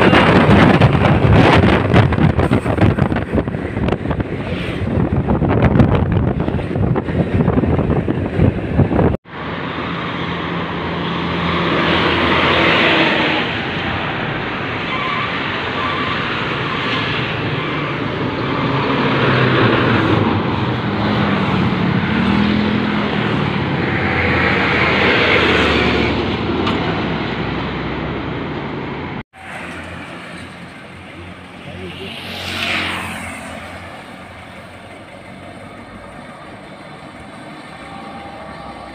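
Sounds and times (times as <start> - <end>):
wind buffeting the microphone: 0.0 - 9.2
road and tyre noise: 0.0 - 38.9.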